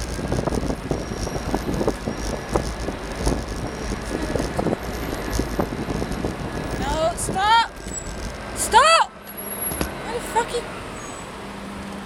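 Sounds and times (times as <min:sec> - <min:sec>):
bicycle knocks and rattles: 0:00.0 - 0:08.6
traffic rumble: 0:00.0 - 0:12.0.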